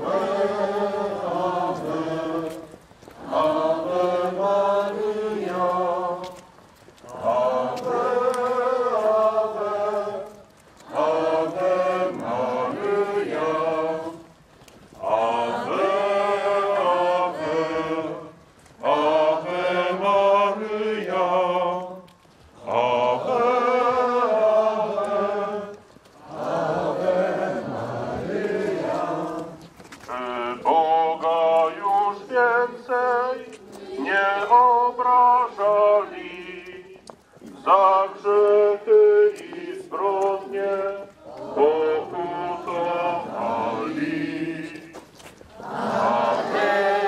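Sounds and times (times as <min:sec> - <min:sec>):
group chanting in unison: 0:00.0 - 0:06.2, 0:07.1 - 0:14.2, 0:15.0 - 0:21.8, 0:22.6 - 0:29.6, 0:30.2 - 0:36.6, 0:37.6 - 0:44.9, 0:45.5 - 0:47.0.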